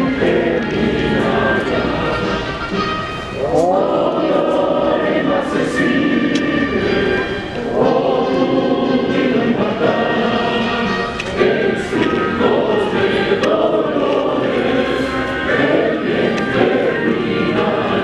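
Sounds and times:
choir singing: 0.0s - 18.0s
musical accompaniment: 0.0s - 18.0s.

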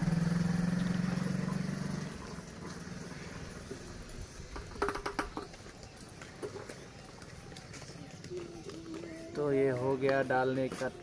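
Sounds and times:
passing vehicle engine hum: 0.0s - 4.4s.

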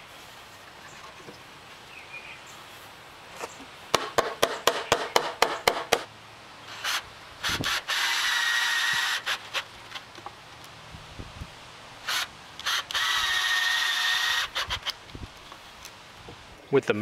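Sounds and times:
rubber mallet tapping wood post: 3.9s - 6.1s
cordless drill driving screw: 6.7s - 9.7s, 12.1s - 15.0s.

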